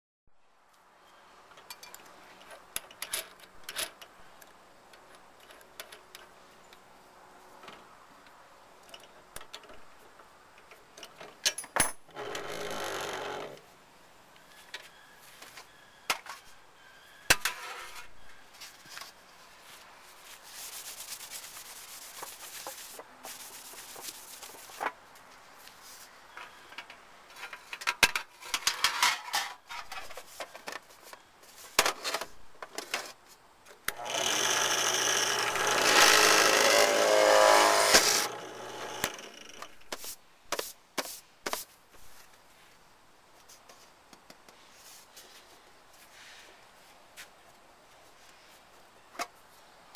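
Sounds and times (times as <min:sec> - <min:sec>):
metal parts clicking and knocking: 0:01.6 - 0:04.1
rubbing and scraping: 0:17.5 - 0:25.0, 0:35.3 - 0:42.2.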